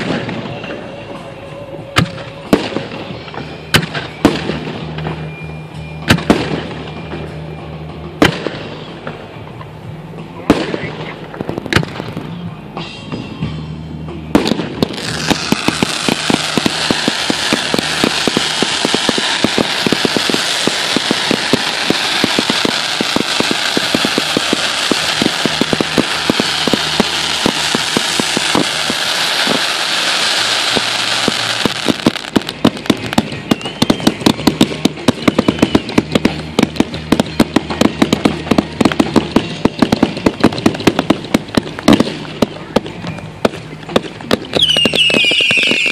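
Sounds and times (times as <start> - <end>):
crackling firework pops: 0.0 - 0.5, 2.0 - 5.3, 6.0 - 6.8, 10.5 - 12.3, 14.3 - 45.9
firework bangs: 0.0 - 1.2, 1.9 - 5.4, 6.0 - 7.5, 8.2 - 9.4, 10.4 - 13.4, 14.2 - 45.9
firework sparks hissing: 14.4 - 45.9.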